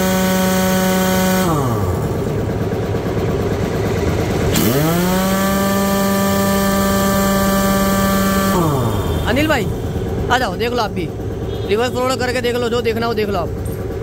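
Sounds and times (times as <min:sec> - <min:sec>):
impact wrench whine: 0:00.0 - 0:11.8
low rumble: 0:07.4 - 0:12.6.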